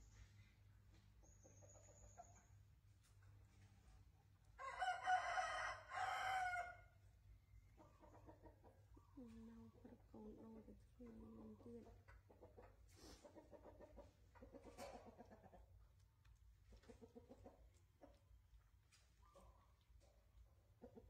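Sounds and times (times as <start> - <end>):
rooster crowing: 4.6 - 6.9.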